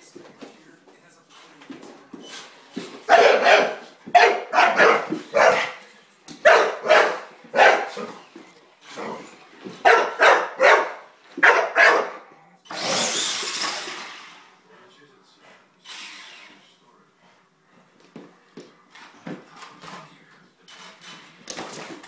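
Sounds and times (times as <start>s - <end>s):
dog barking: 3.1s - 5.8s, 6.4s - 8.1s, 9.8s - 12.4s.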